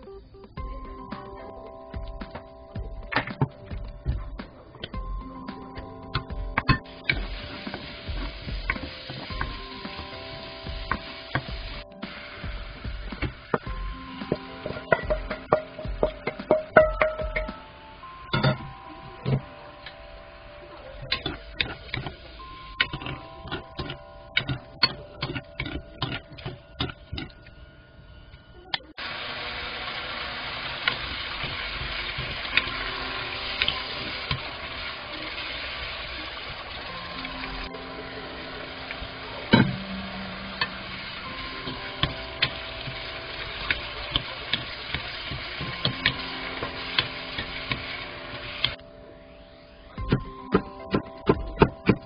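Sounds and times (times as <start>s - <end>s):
light sizzle: 1.2s - 49.0s.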